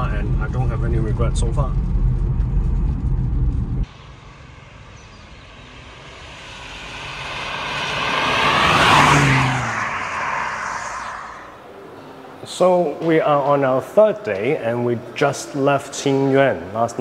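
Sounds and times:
engine and road drone in cabin: 0:00.0 - 0:11.6
car driving past: 0:01.4 - 0:12.1
tyres hissing on wet road: 0:04.4 - 0:11.6.

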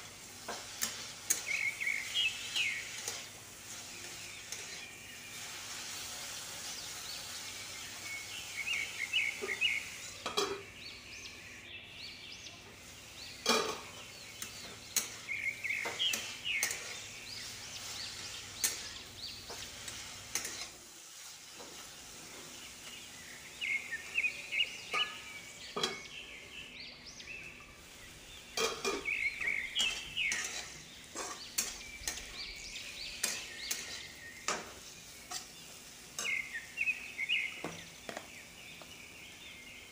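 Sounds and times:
vegetables sizzling in oil: 0:00.0 - 0:11.6, 0:12.6 - 0:39.9
birds chirping: 0:00.0 - 0:20.8, 0:21.6 - 0:39.9
metal spatula scraping pan: 0:00.4 - 0:06.8, 0:13.4 - 0:22.6, 0:28.5 - 0:36.6.

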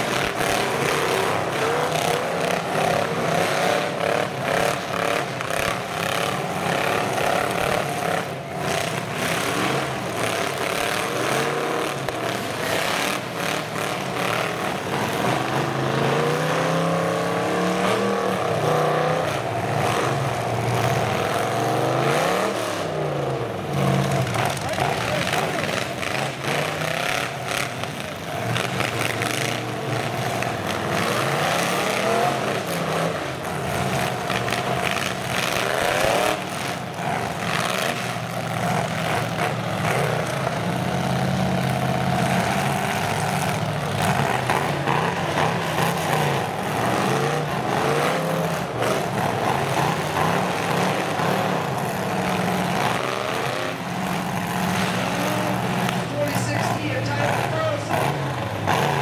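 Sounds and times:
truck engines revving hard: 0:00.0 - 0:59.0.

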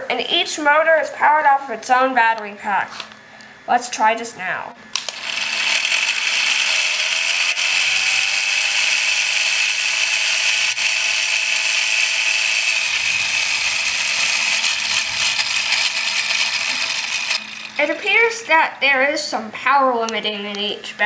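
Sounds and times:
motors whirring gears grinding: 0:05.0 - 0:18.1.

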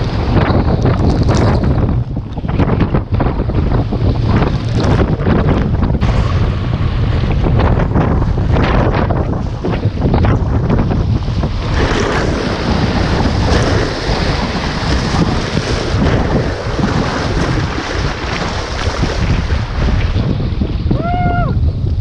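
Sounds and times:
waves breaking and splashing: 0:00.0 - 0:21.0
wind buffeting microphone: 0:00.0 - 0:22.0
paddle strokes in water: 0:11.2 - 0:20.2.

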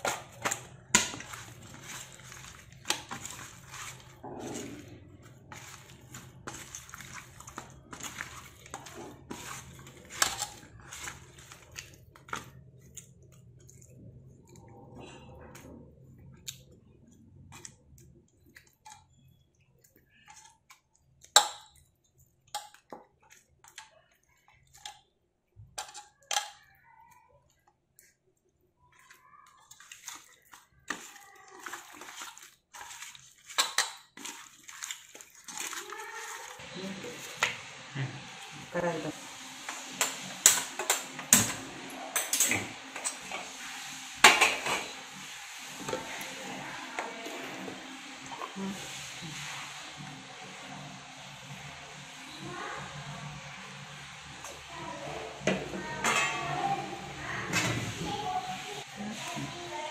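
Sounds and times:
fish squishing in marinade: 0:00.0 - 0:41.7.

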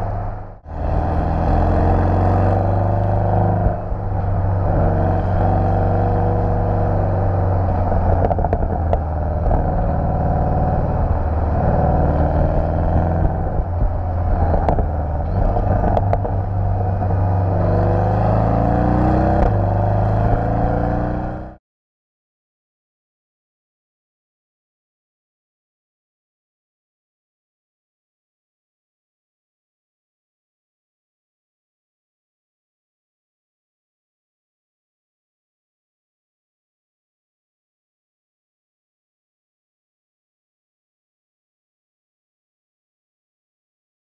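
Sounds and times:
car engine and exhaust: 0:00.0 - 0:21.6
road noise: 0:00.0 - 0:21.6.

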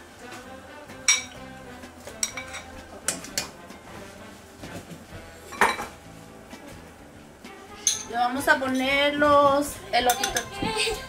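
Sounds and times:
metal spoon clinking on bowl: 0:07.8 - 0:08.1, 0:10.0 - 0:10.6.

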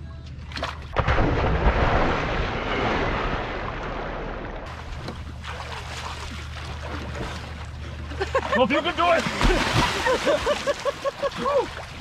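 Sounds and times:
churning water: 0:00.5 - 0:12.0
loud splash into water: 0:00.6 - 0:04.7, 0:09.2 - 0:10.6.

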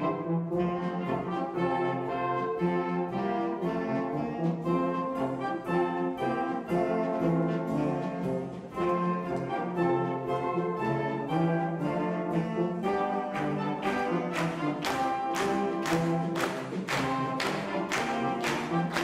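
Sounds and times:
wind band playing: 0:00.0 - 0:19.0
drum kit beat: 0:13.2 - 0:19.0.

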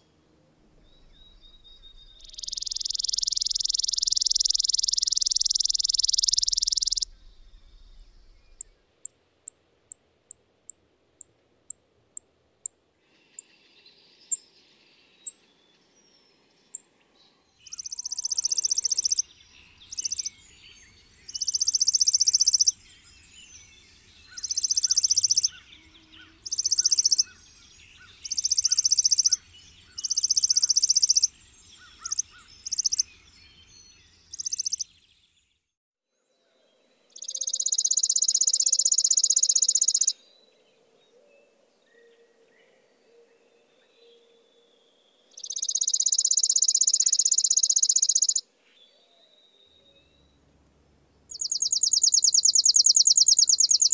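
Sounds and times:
sparrow trilling: 0:00.7 - 0:10.8, 0:17.6 - 0:35.1, 0:37.2 - 0:40.2, 0:45.3 - 0:48.4, 0:51.3 - 0:53.9.

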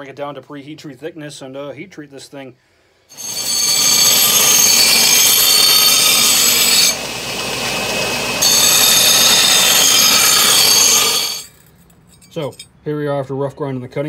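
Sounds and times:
belt grinder running: 0:03.1 - 0:11.5
belt grinder grinding steel: 0:03.1 - 0:11.6.

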